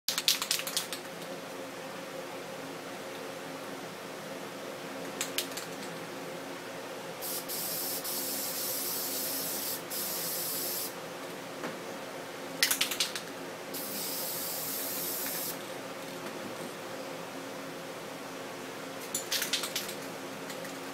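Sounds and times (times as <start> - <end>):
spray paint can hissing: 7.2 - 11.0, 13.8 - 15.6.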